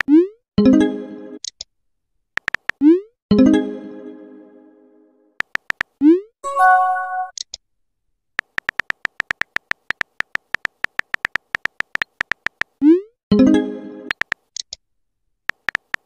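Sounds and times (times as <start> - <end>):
rapid keyboard tap clicks: 2.4 - 2.8, 5.4 - 6.0, 8.4 - 12.8, 14.1 - 14.5, 15.5 - 16.0
short chime: 6.4 - 7.3.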